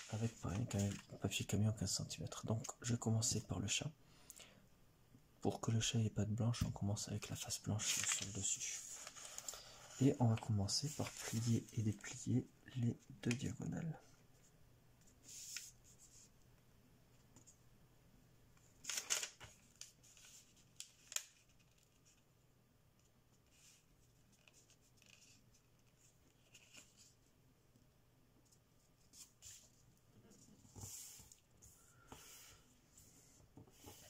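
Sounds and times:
paper rustling and creasing: 0:00.0 - 0:01.2, 0:07.7 - 0:12.2, 0:18.8 - 0:22.2, 0:23.4 - 0:27.2.

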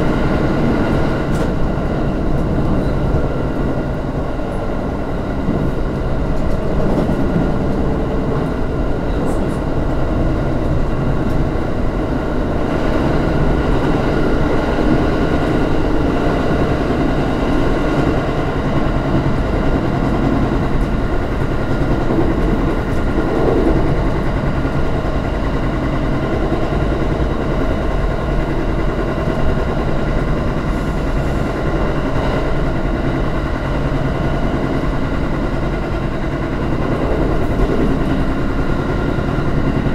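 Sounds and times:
train wheels rumbling on rail: 0:00.0 - 0:39.9.

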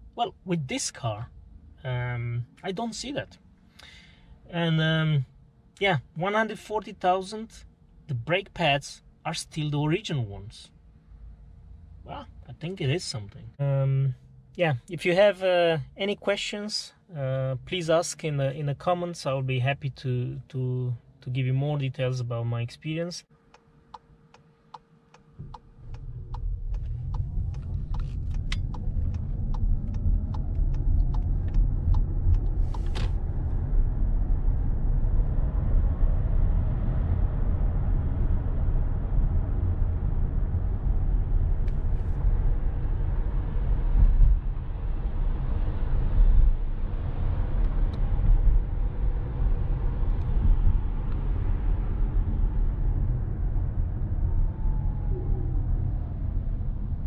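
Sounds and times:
regular ticking: 0:23.5 - 0:32.4
tyre and road noise: 0:25.2 - 0:57.0.

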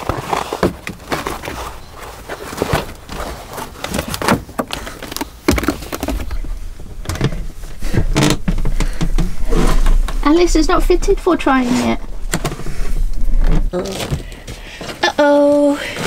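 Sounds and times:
carpet rustling and scuffing: 0:00.0 - 0:15.7
heavy thump: 0:05.5 - 0:15.0.

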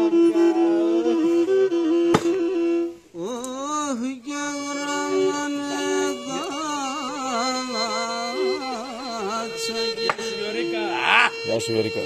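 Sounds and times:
lyra drone and melody: 0:00.0 - 0:12.0
man singing: 0:03.2 - 0:11.4.

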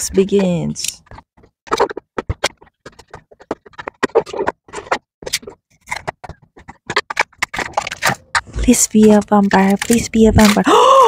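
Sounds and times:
packaging crinkling and clicking: 0:03.7 - 0:08.4, 0:09.1 - 0:10.7.

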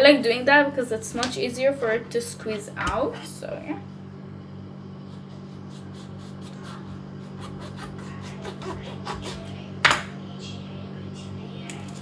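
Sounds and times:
knife sawing through lemon peel: 0:05.1 - 0:09.5.

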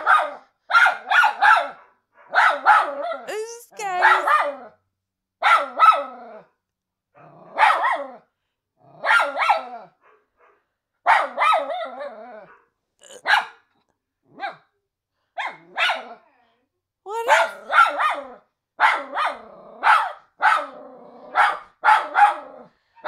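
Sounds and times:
dog barking and yelping: 0:00.0 - 0:04.8, 0:05.4 - 0:06.4, 0:07.2 - 0:08.2, 0:09.0 - 0:13.6, 0:14.3 - 0:14.7, 0:15.4 - 0:16.2, 0:17.1 - 0:22.6.

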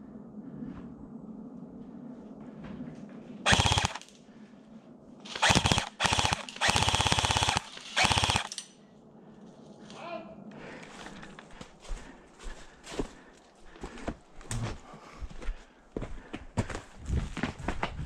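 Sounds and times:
airsoft gun automatic bursts: 0:03.5 - 0:04.1, 0:05.3 - 0:08.6.

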